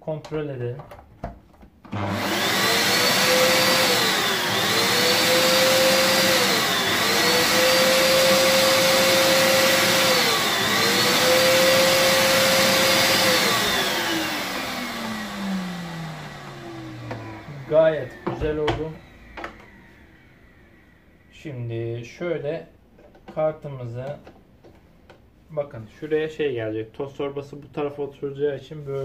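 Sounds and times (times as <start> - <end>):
vacuum cleaner motor whining: 1.9 - 21.4.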